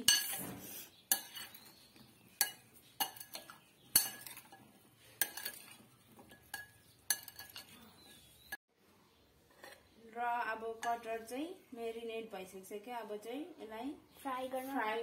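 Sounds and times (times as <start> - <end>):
metal clinking on bowl: 0.0 - 0.4, 1.1 - 1.7, 2.4 - 8.0
spoon stirring in a bowl: 0.0 - 8.2.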